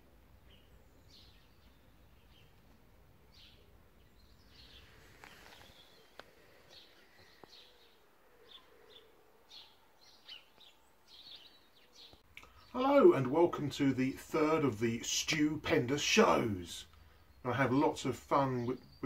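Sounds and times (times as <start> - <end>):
bird chirps: 0.4 - 13.8
faint clicks: 12.1 - 12.6.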